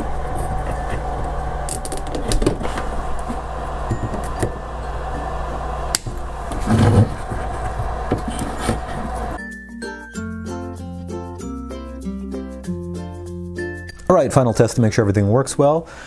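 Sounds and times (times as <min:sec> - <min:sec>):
steady electrical hum: 0:00.0 - 0:09.4.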